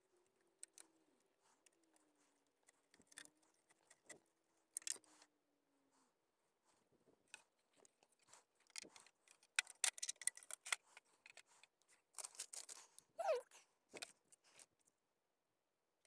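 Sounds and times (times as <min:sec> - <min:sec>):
hands handling metal and plastic parts: 0:00.6 - 0:00.8, 0:02.6 - 0:05.3, 0:07.2 - 0:13.0, 0:14.0 - 0:14.8.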